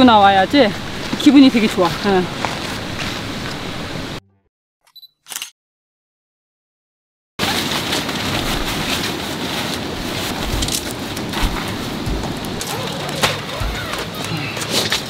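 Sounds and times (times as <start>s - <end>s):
steady rushing noise: 0.0s - 4.2s, 7.4s - 15.0s.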